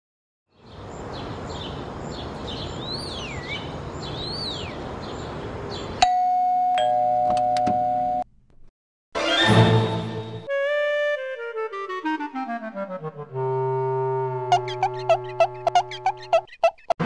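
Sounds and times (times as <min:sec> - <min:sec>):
high chirps: 0:14.5 - 0:16.9.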